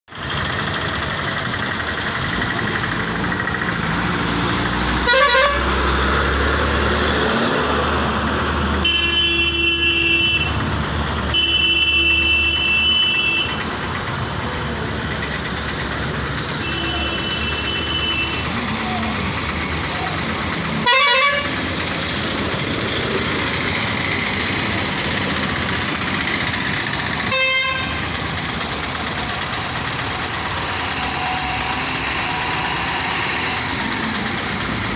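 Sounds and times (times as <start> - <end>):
traffic engines rumbling: 0.1 - 34.9
vehicle horn honking: 5.0 - 5.7, 8.8 - 10.6, 11.3 - 13.6, 16.6 - 18.6, 20.8 - 21.6, 27.2 - 28.0.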